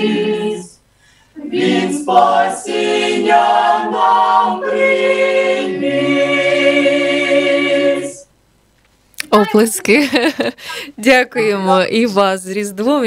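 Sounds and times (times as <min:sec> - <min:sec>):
mixed choir singing a cappella: 0:00.0 - 0:00.8, 0:01.4 - 0:08.3.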